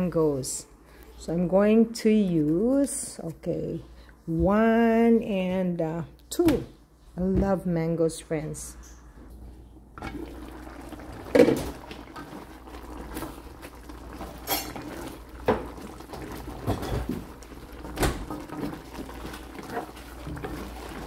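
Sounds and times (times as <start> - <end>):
food simmering in a pan: 10.0 - 21.0.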